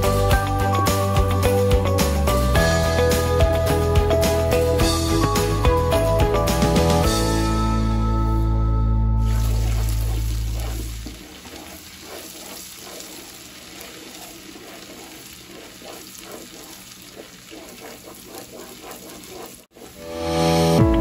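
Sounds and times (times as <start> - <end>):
sauce sizzling and bubbling in pot: 9.1 - 21.0
wooden spoon stirring: 9.2 - 20.0.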